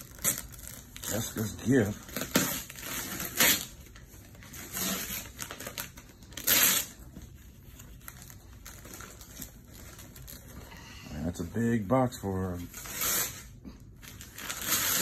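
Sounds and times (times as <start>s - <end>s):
paper crinkling and rustling: 0.0s - 10.6s
wrapping paper ripping: 0.0s - 10.7s, 11.5s - 15.0s.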